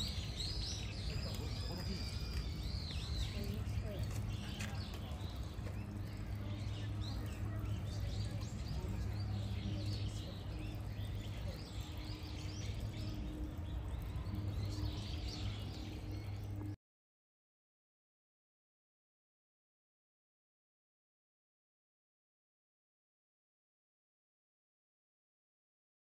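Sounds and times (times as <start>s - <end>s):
small birds chirping: 0.0s - 16.8s.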